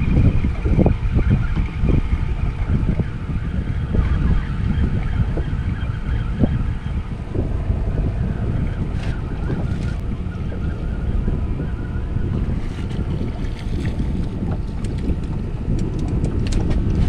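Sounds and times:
water lapping at hull: 0.0 - 17.0
wind buffeting microphone: 0.0 - 17.0.

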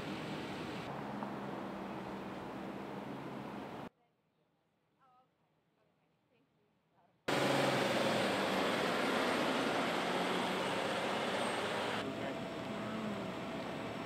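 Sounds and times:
idling engine hum: 0.0 - 3.9, 7.3 - 14.0
traffic noise hiss: 0.0 - 3.9, 7.3 - 14.0.

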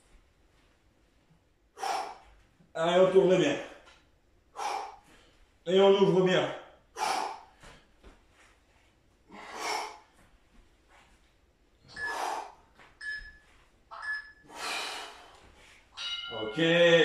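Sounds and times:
man breathing hard: 1.7 - 2.4, 4.5 - 5.6, 6.9 - 8.1, 9.2 - 10.4, 11.9 - 12.8, 14.4 - 15.9.

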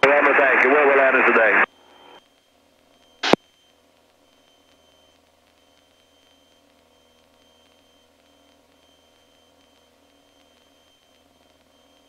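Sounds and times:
sharp radio squelch burst: 0.0 - 2.2
faint radio hiss and hum: 0.0 - 12.0.

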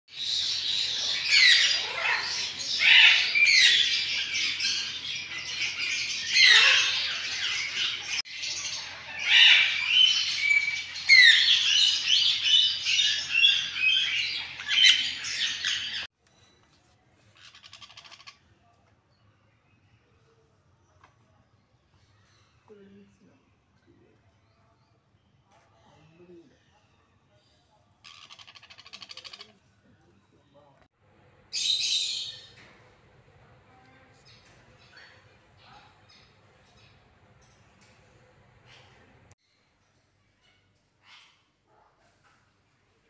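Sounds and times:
parrots chirping and squawking: 0.1 - 16.1, 17.3 - 18.4, 28.0 - 29.7.

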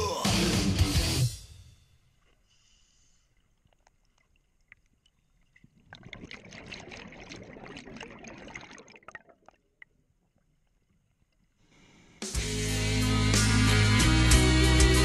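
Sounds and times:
underwater exhaled bubbles: 3.3 - 10.5.

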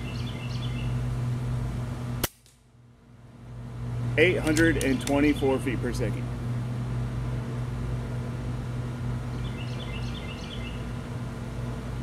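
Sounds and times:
bird chirping: 0.0 - 1.0, 9.3 - 11.0
low machine hum: 0.0 - 12.0.

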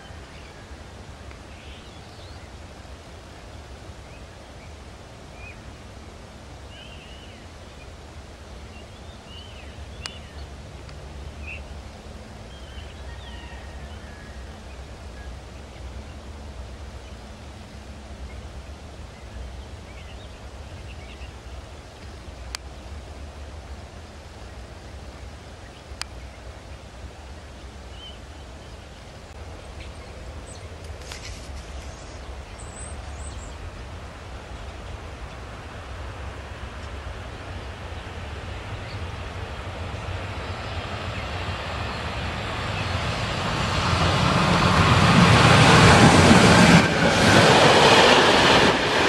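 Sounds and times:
steady low rumble: 13.9 - 49.0.

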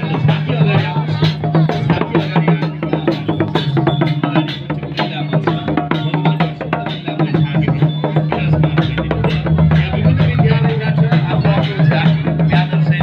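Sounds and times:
rapid drum strokes: 0.0 - 13.0
steady low held tone: 7.1 - 12.3.

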